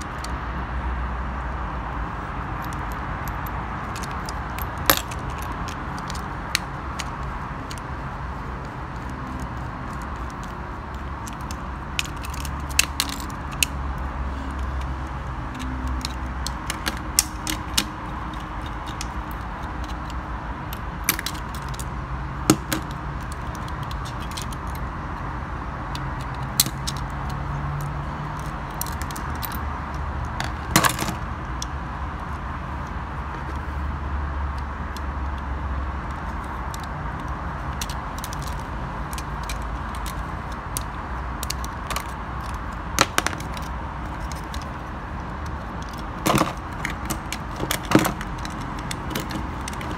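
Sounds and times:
plastic toy parts clicking: 2.6 - 7.9, 9.0 - 13.8, 14.4 - 20.2, 36.1 - 44.8, 45.4 - 49.9.

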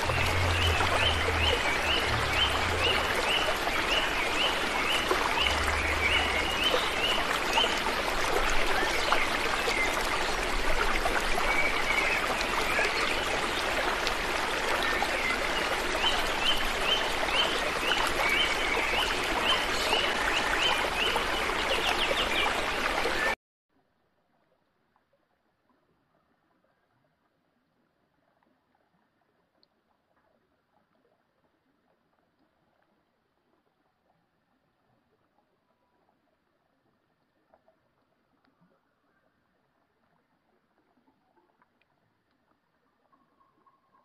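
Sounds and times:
stream splashing over stones: 0.0 - 23.4.

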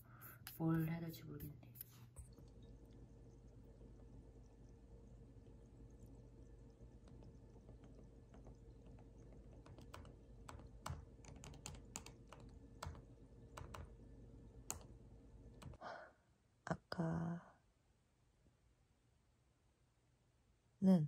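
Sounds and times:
low room hum: 0.0 - 21.0
laptop keys and trackpad clicking: 7.1 - 13.9, 14.6 - 14.9, 15.6 - 15.8.

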